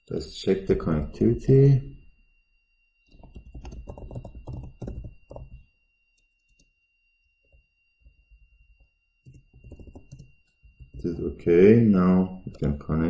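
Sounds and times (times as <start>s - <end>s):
keyboard typing: 3.1s - 5.6s, 9.2s - 11.4s, 12.4s - 12.8s.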